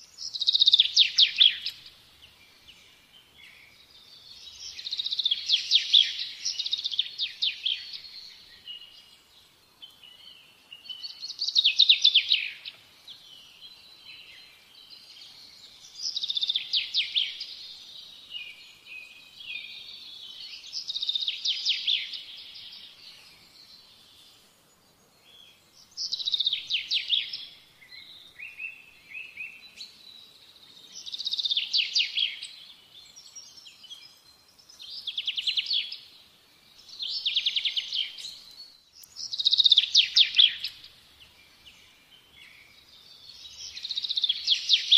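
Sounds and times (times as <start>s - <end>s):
faint bird chirps: 0.0s - 44.9s
songbird trilling: 39.0s - 41.0s, 43.5s - 44.9s.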